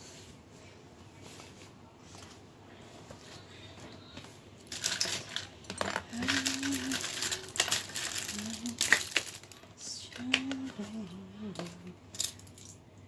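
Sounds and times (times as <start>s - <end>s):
household items clicking and clattering: 4.6s - 12.8s.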